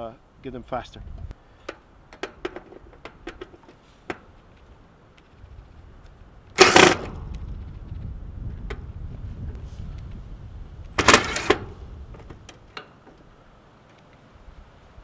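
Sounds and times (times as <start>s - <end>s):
drill motor whirring: 6.6s - 7.0s.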